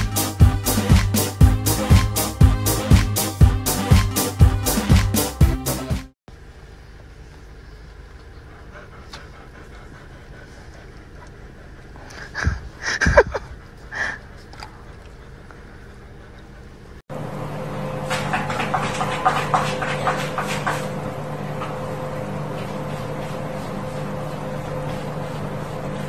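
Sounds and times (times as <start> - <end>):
steady hum: 6.3 - 26.0
cat scratching in litter tray: 18.1 - 21.0.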